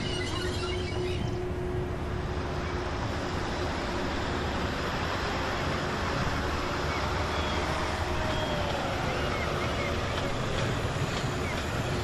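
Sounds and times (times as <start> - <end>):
water: 0.0 - 12.0
wind: 0.0 - 12.0.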